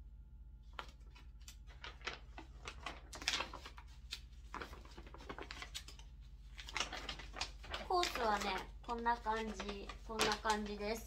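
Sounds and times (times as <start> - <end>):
paper rustling and crinkling: 0.7 - 11.0.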